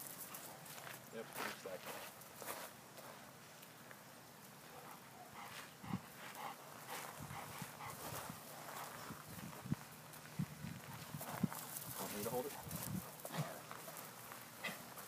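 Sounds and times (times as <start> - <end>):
paws crunching on mulch: 5.4 - 15.0.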